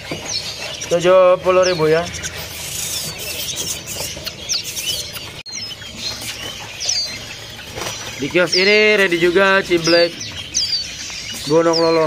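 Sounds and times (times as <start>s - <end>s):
songbirds chirping: 0.0s - 12.0s.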